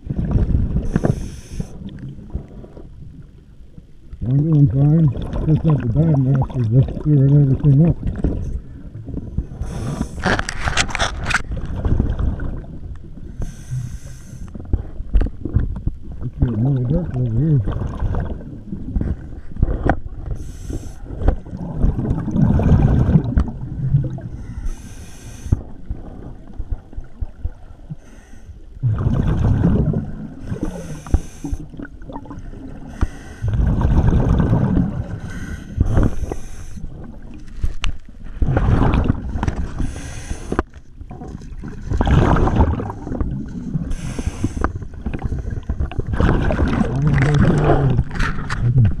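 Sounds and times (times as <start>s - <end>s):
regulator hissing inhalation: 0.9s - 1.8s, 13.4s - 14.5s, 24.4s - 25.6s, 30.6s - 31.6s, 35.3s - 36.8s, 43.9s - 44.7s
exhaled bubbles rushing: 4.2s - 12.9s, 15.5s - 20.4s, 21.0s - 24.4s, 28.8s - 37.4s, 38.3s - 39.9s, 41.1s - 49.0s.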